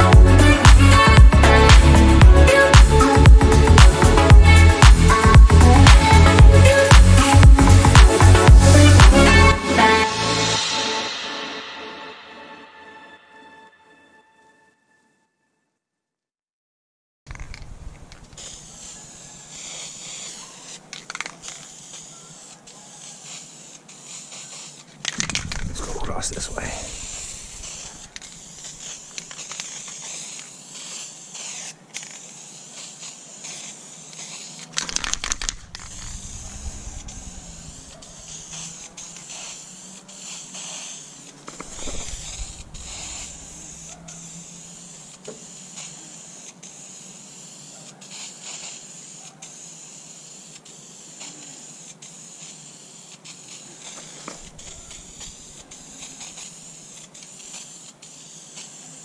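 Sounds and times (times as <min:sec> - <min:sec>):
spray paint can hissing: 0:00.0 - 0:11.5, 0:17.3 - 0:59.0.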